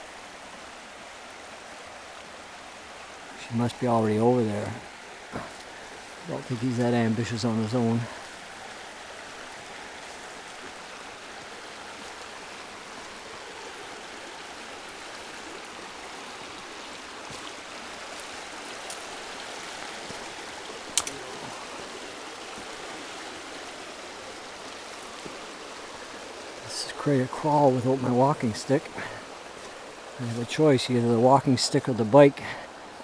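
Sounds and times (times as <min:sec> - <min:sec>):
river water rushing over rocks: 0:00.0 - 0:33.0
sharp click: 0:20.9 - 0:21.2.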